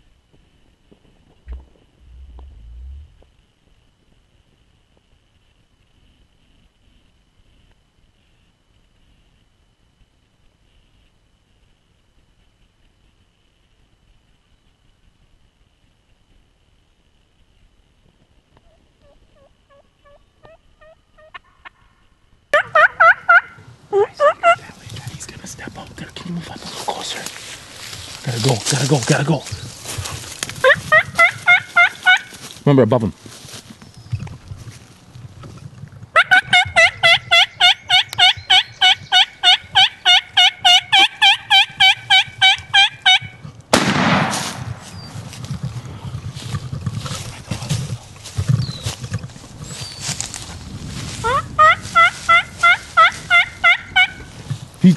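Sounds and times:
turkey yelping: 19.0 - 21.7, 22.5 - 24.7, 30.0 - 32.4, 36.2 - 43.4, 51.2 - 54.3
shotgun shot with echo: 43.7 - 45.0.

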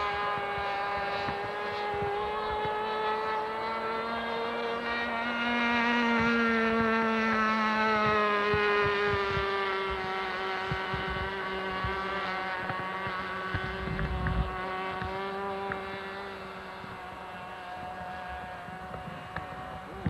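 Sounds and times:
wind on microphone: 0.0 - 4.0, 5.6 - 20.0
model plane engine drone: 0.0 - 20.0.

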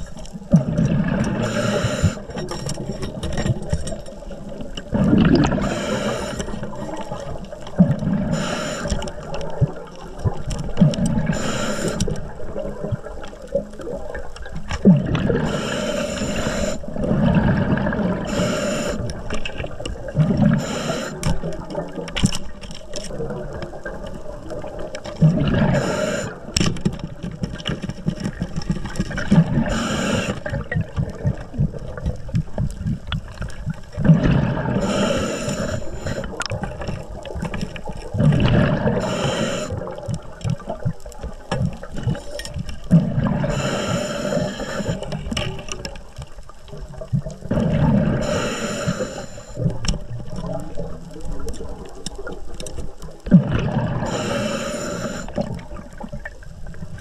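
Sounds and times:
underwater air bubbles bursting: 0.0 - 57.0.

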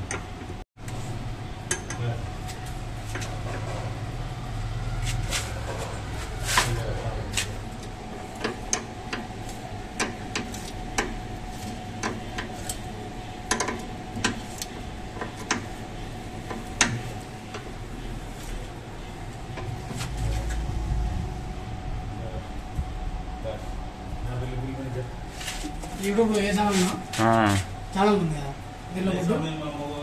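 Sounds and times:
faint hum: 0.0 - 30.0
low rumble: 19.3 - 24.7.

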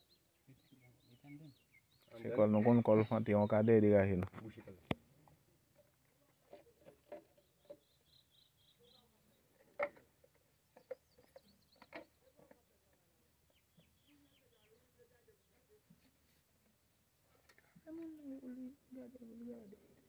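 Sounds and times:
high bird chirps: 7.4 - 9.4, 10.7 - 12.3.

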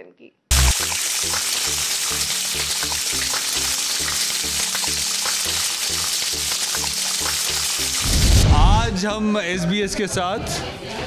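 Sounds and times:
music with bass beat: 0.5 - 1.0
food sizzling in pan: 0.5 - 8.4.

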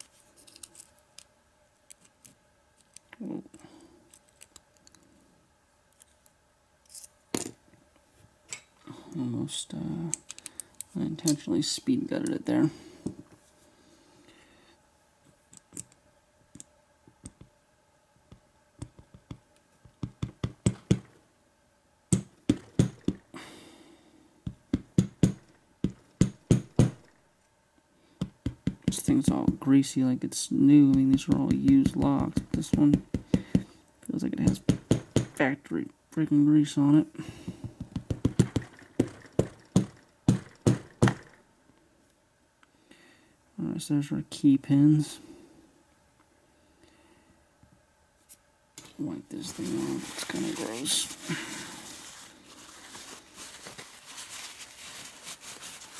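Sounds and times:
scraping rustle: 48.2 - 55.9.

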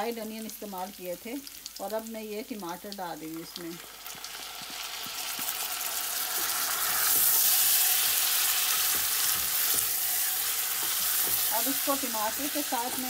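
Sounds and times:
potato slices sizzling in butter: 0.0 - 13.0
wooden spoon stirring: 6.3 - 13.0.

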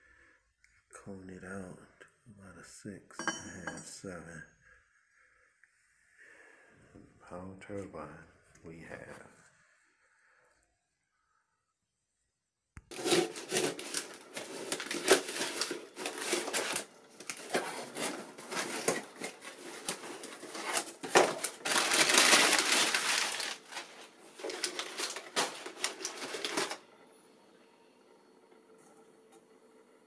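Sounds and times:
objects knocking: 3.2 - 3.8
rustling: 12.9 - 26.8.

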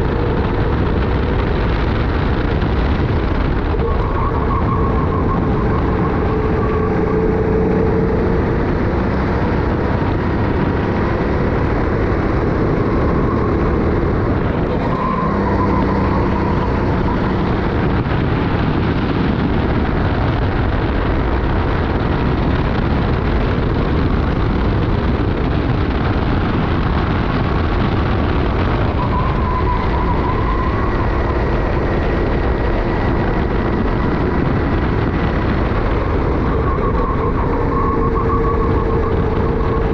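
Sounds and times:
kart engine running: 0.0 - 39.9
wind rush on camera: 0.0 - 39.9.

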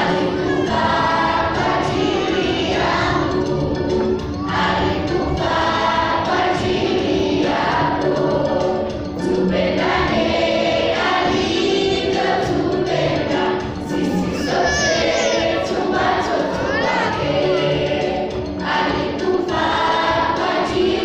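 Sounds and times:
children's choir singing gospel: 0.0 - 21.0.

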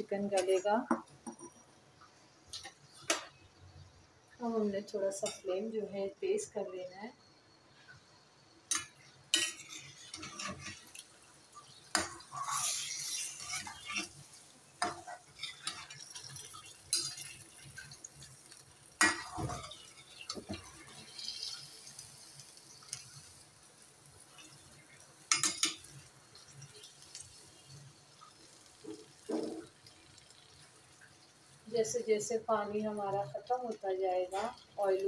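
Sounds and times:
metal spoon scraping a pan: 8.7 - 11.1, 11.8 - 23.4, 25.3 - 27.6.

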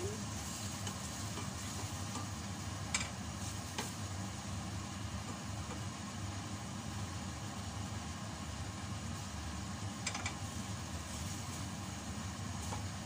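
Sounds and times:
steady low hum: 0.0 - 13.0
wooden spatula stirring in a pot: 0.2 - 4.2.

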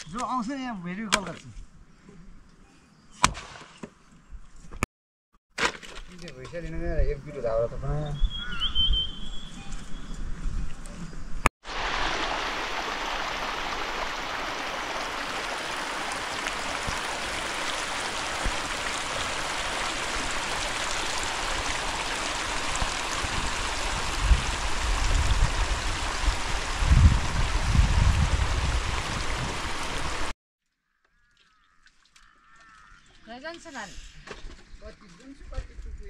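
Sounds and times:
water rushing: 11.6 - 30.3.

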